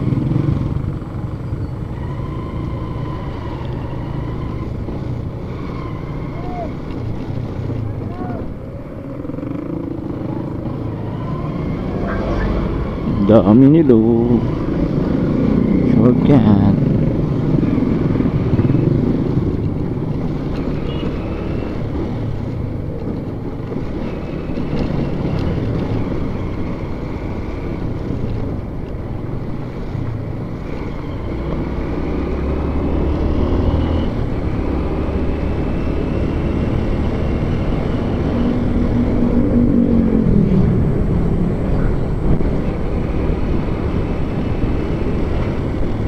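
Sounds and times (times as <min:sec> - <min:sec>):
wind noise on microphone: 0:36.6 - 0:46.0.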